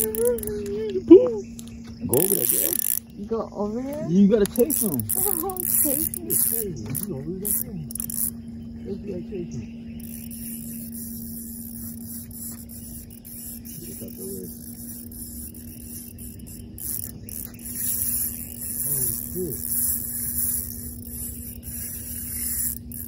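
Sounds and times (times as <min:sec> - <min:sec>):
faint voices: 0:00.0 - 0:09.8, 0:18.8 - 0:19.7
fishing reel rasping whir: 0:00.0 - 0:23.0
steady low hum: 0:00.0 - 0:23.0.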